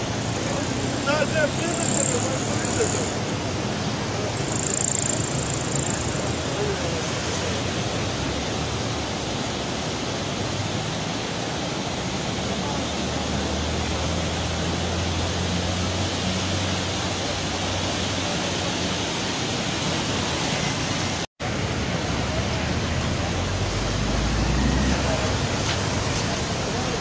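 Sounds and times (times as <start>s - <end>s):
river rushing: 0.0s - 27.0s.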